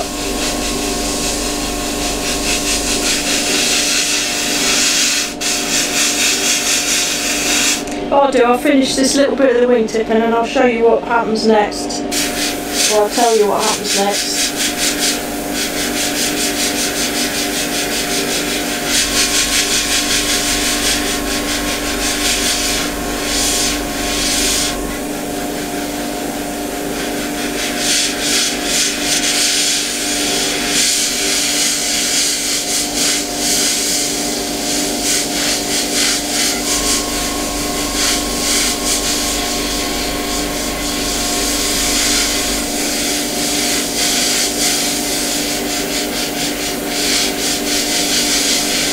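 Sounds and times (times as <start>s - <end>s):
deep motor hum: 0.0s - 5.5s, 7.8s - 16.1s, 18.0s - 26.8s, 36.4s - 43.6s
airbrush hissing: 0.0s - 8.0s, 12.1s - 26.0s, 26.9s - 48.9s
steady hum: 0.0s - 48.9s.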